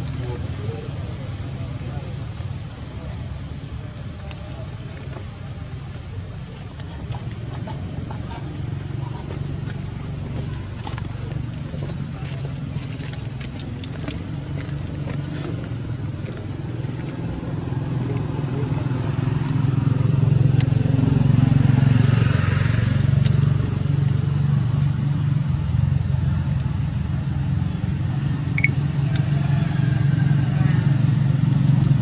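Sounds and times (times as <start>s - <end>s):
vehicle engine passing: 0.0s - 32.0s.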